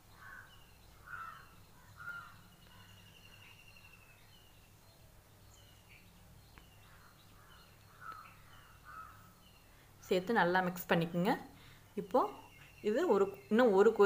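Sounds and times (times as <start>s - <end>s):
faint bird calls: 0.0s - 4.6s, 5.6s - 9.8s.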